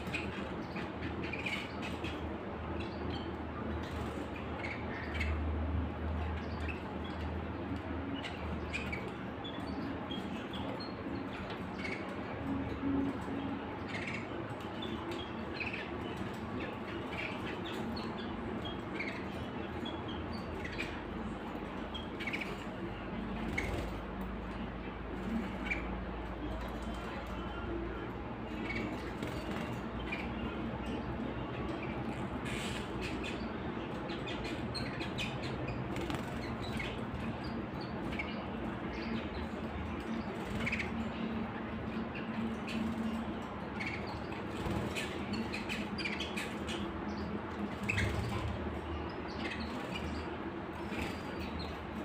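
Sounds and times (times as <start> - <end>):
canaries chirping: 0.0 - 52.0
wings fluttering: 35.8 - 37.2.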